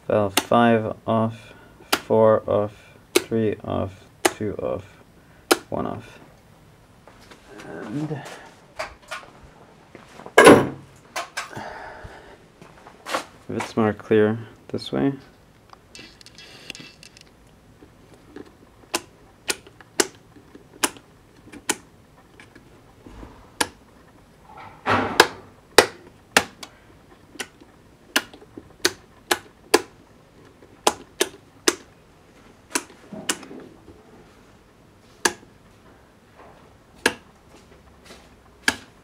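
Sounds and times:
toggle switches flipping: 0:05.5 - 0:05.7, 0:18.4 - 0:22.6, 0:23.6 - 0:23.8, 0:25.2 - 0:26.7, 0:27.3 - 0:30.0, 0:30.8 - 0:31.9, 0:32.6 - 0:33.6, 0:35.2 - 0:35.5, 0:37.0 - 0:37.3, 0:38.6 - 0:38.9.

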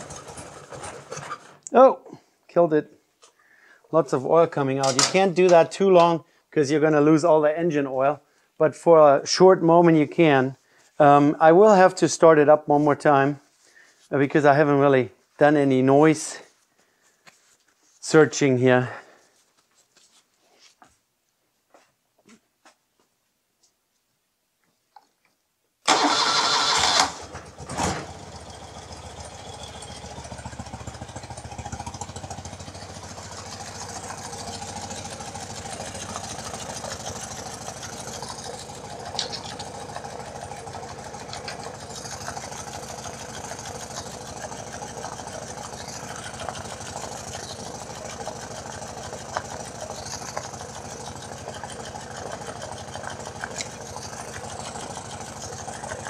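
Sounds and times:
motorcycle engine idling: 0:00.0 - 0:01.6, 0:27.1 - 0:56.0
engine cranking: 0:00.0 - 0:01.7, 0:25.9 - 0:56.0
faint engine ticks: 0:27.4 - 0:56.0.

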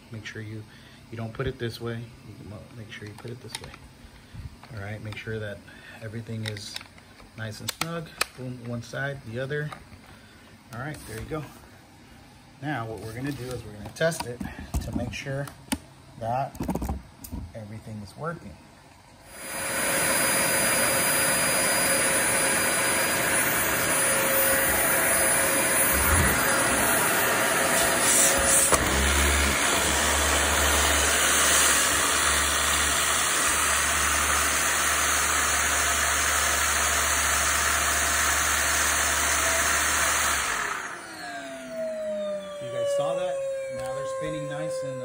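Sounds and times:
motor winding down whine: 0:19.2 - 0:45.0
vacuum cleaner motor running: 0:19.3 - 0:45.0.

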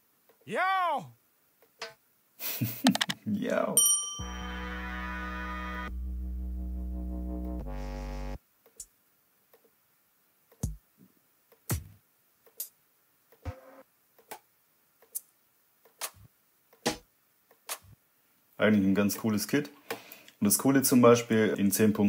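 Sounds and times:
synth bass note: 0:04.2 - 0:08.4.

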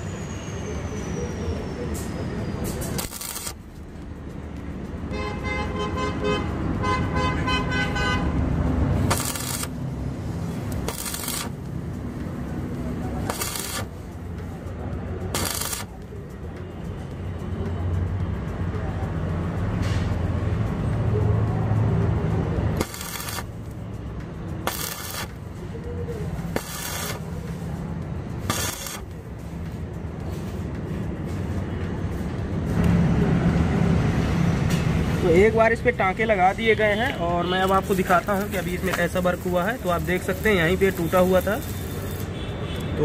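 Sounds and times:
low traffic rumble: 0:00.0 - 0:43.0
welding arc crackling and hissing: 0:02.7 - 0:03.8, 0:08.9 - 0:14.4, 0:15.3 - 0:16.2, 0:22.7 - 0:23.8, 0:24.6 - 0:25.6, 0:26.3 - 0:29.6, 0:37.6 - 0:42.5
vehicle horn blasts: 0:05.1 - 0:08.3.

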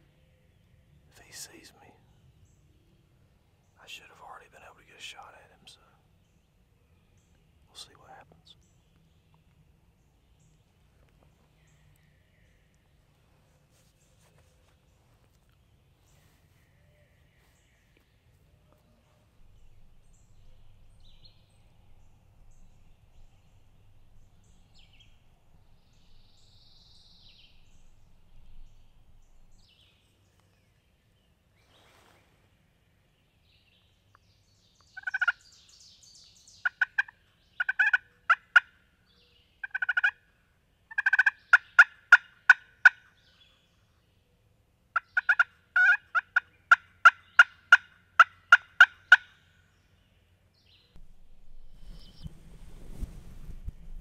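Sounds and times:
turkey yelps on friction call: 0:36.7 - 0:38.7, 0:39.6 - 0:40.2, 0:41.0 - 0:43.1, 0:45.0 - 0:49.3.

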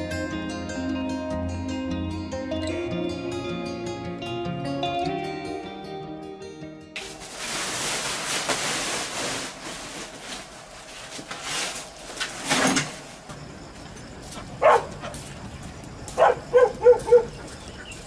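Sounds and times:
plastic sacks rustling and scraping: 0:07.0 - 0:13.4.

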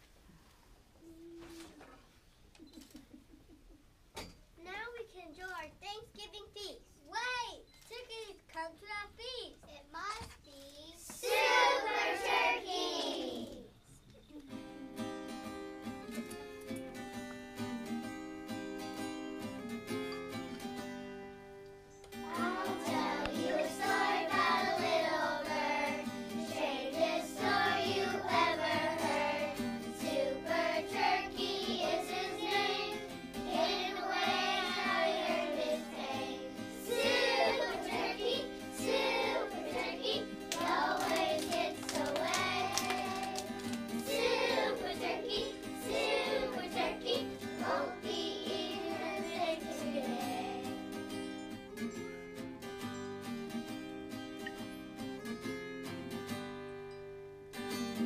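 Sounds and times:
acoustic guitar: 0:09.6 - 0:58.0
children singing: 0:11.2 - 0:13.6, 0:22.3 - 0:50.9.

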